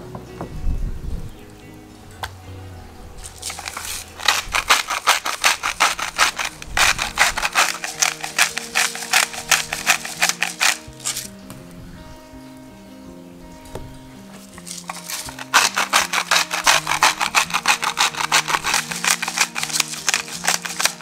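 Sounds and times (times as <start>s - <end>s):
grinder ratcheting clicks: 3.4s - 11.3s, 14.6s - 21.0s.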